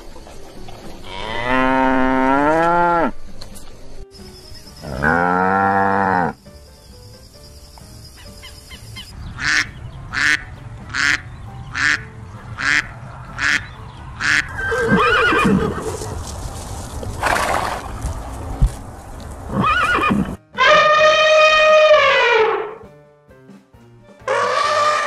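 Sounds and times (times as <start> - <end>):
horse whinnying: 14.5 - 16.0, 19.5 - 22.8, 24.3 - 25.0.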